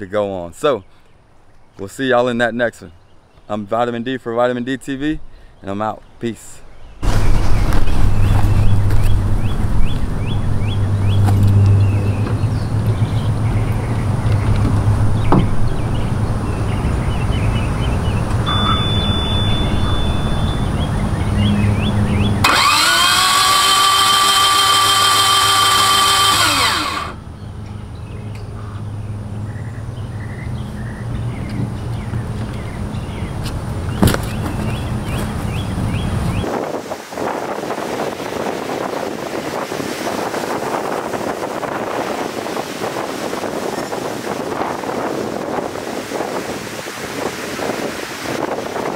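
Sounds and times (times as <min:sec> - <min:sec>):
thin high beep: 0:18.4 - 0:20.8
electric motor whining: 0:22.4 - 0:27.2.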